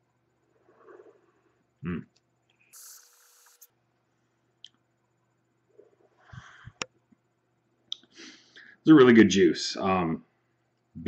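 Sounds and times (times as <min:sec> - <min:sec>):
breathy vaping hiss: 0:02.7 - 0:03.7.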